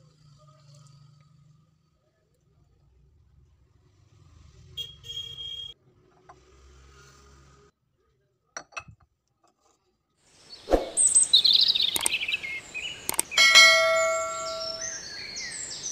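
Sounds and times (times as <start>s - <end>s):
twittering bird-like chirps: 10.5s - 15.9s
sharp clicks: 11.8s - 12.4s, 13.0s - 13.4s
ringing bell-like ding: 13.4s - 15.1s.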